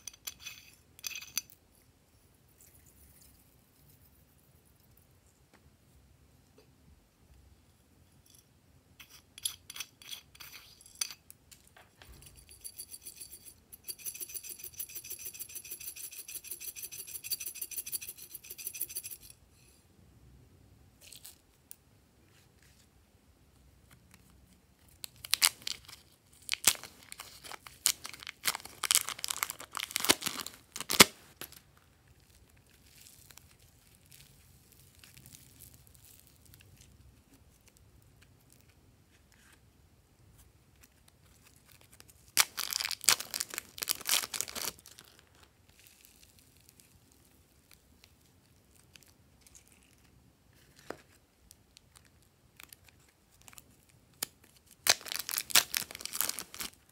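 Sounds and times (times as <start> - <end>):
plastic packet crinkling and tearing: 25.1 - 36.9, 41.3 - 47.0, 51.8 - 56.9
soft squishing of clay: 31.3 - 42.4, 44.6 - 54.8.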